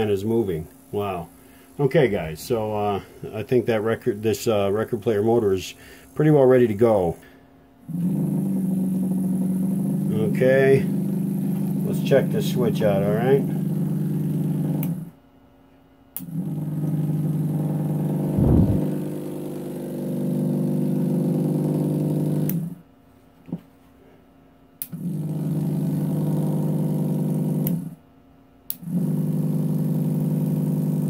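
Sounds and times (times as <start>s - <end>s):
electric motor hum: 6.2s - 15.2s, 16.2s - 22.8s, 24.8s - 28.0s, 28.7s - 31.0s.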